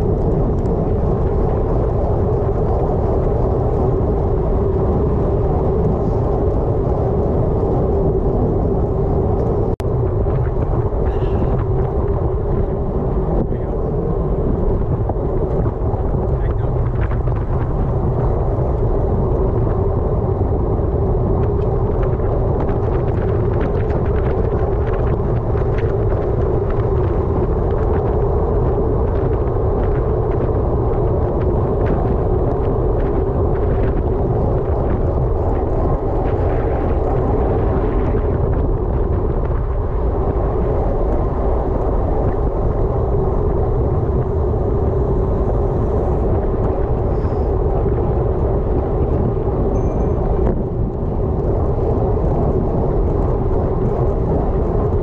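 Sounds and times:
low hum: 0:00.0 - 0:55.0
wind rush on microphone: 0:00.0 - 0:55.0.

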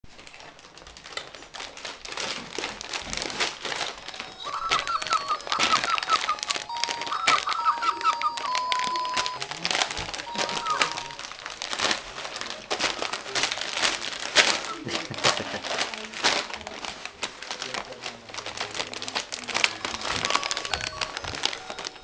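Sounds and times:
plastic pouch crinkling: 0:00.1 - 0:22.0
electronic toy tune: 0:04.1 - 0:09.4, 0:10.2 - 0:11.2
electronic beeps: 0:04.4 - 0:09.5, 0:10.3 - 0:11.2.

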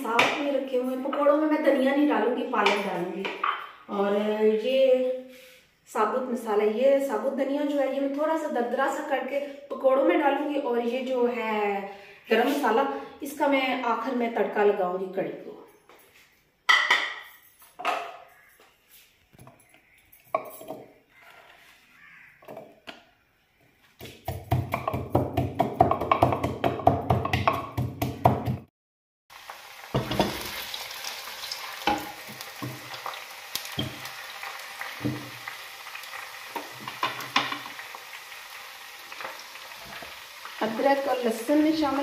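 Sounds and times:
onions sizzling in oil: 0:29.3 - 0:42.0.

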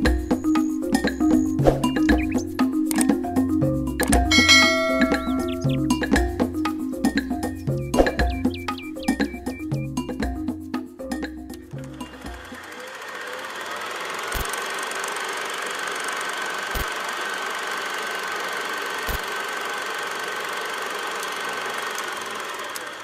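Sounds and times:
film projector whirring: 0:11.8 - 0:23.0.

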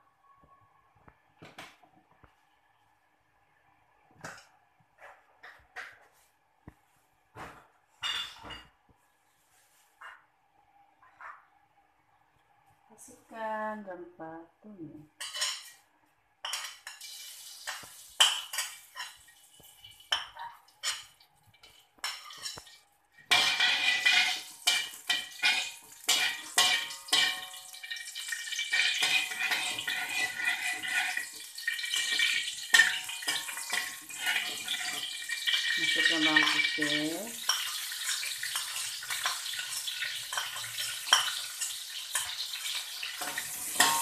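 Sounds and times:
spices frying hiss: 0:16.7 - 0:44.0
metal spatula scraping a wok: 0:20.8 - 0:27.6, 0:28.2 - 0:44.0.

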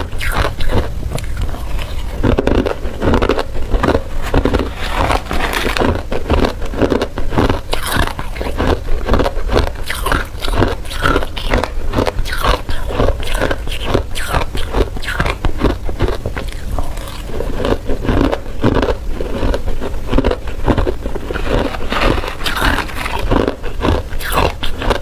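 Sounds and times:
ice being chewed and crunched: 0:00.0 - 0:25.0
metal spoon scraping ice: 0:21.3 - 0:23.3.

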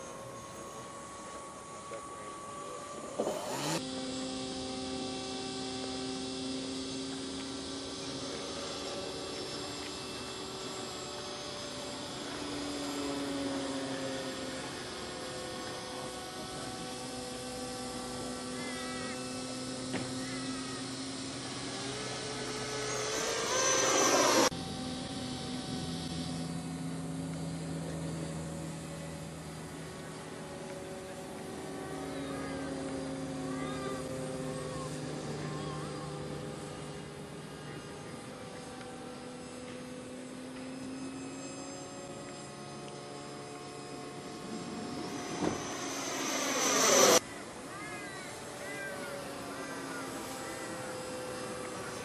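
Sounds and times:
model jet fan whining: 0:00.0 - 0:52.0
short wavering high calls: 0:40.1 - 0:52.0.

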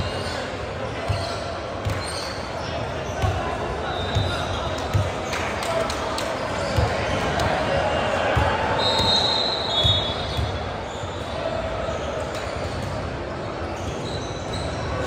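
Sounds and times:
sneaker squeaks on court: 0:00.0 - 0:05.3, 0:06.5 - 0:07.2, 0:08.8 - 0:13.0, 0:13.6 - 0:15.0
murmur of the hall: 0:00.0 - 0:15.0
basketball bouncing: 0:04.1 - 0:05.2.

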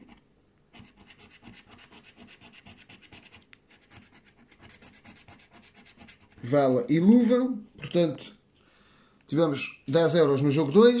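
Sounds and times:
coin scratching lottery ticket: 0:00.8 - 0:06.4.

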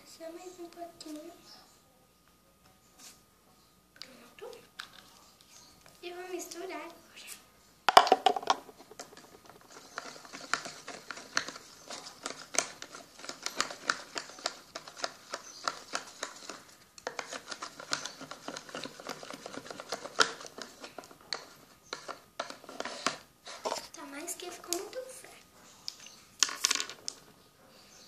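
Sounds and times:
toy spoon scraping plastic pot: 0:08.3 - 0:25.1.

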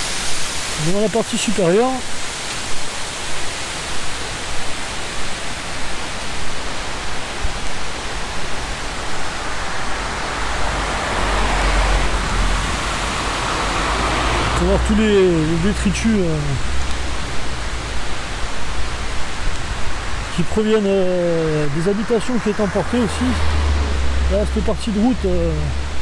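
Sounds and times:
river rushing: 0:00.0 - 0:26.0
low rumble: 0:20.9 - 0:26.0.

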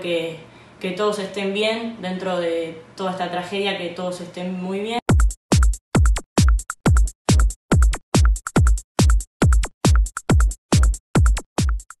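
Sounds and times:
electronic dance music: 0:05.1 - 0:11.9.

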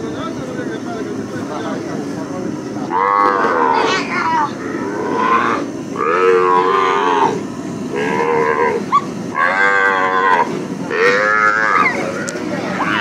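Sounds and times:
calf bawling: 0:02.9 - 0:13.0.

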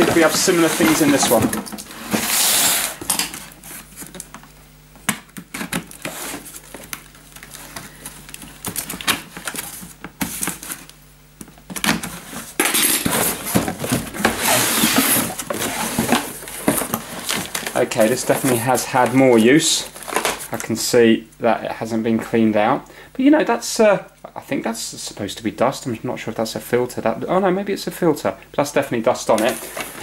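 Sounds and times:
cardboard flaps scraping: 0:00.0 - 0:04.2, 0:11.8 - 0:19.3
packaging rustling: 0:00.0 - 0:04.5, 0:05.4 - 0:11.0, 0:11.7 - 0:20.7.

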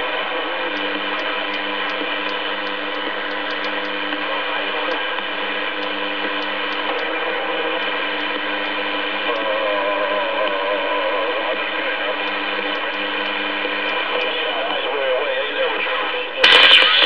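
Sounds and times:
radio speaker hissing: 0:00.0 - 0:17.0
faint irregular clicks: 0:00.7 - 0:04.2, 0:04.8 - 0:09.5, 0:12.2 - 0:14.4.

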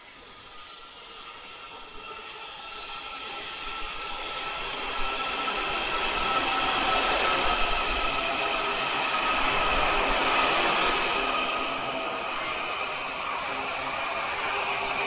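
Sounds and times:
subway train rolling past: 0:00.0 - 0:15.0.

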